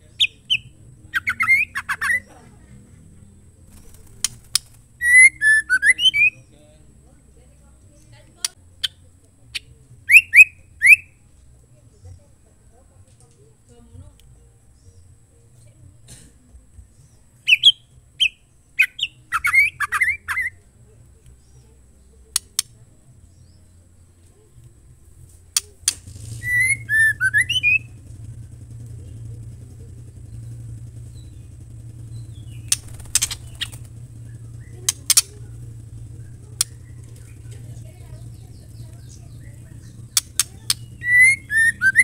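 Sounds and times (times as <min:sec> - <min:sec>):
bird calling: 0:00.0 - 0:06.6, 0:09.6 - 0:11.2, 0:17.4 - 0:20.6, 0:25.6 - 0:42.0
low steady hum: 0:00.0 - 0:42.0
sharp clicks: 0:03.7 - 0:04.9, 0:22.3 - 0:22.8, 0:24.6 - 0:42.0.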